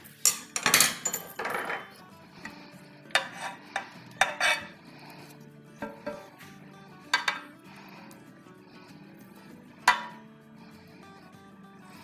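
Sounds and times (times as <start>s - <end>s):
metal tongs clacking on pan: 7.1s - 7.5s, 9.9s - 10.2s.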